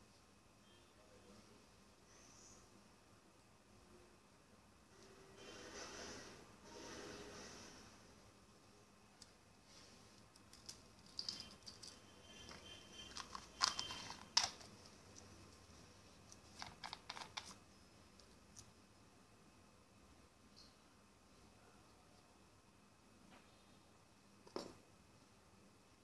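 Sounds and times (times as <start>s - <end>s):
plastic bottle caps clicking: 13.2s - 14.7s.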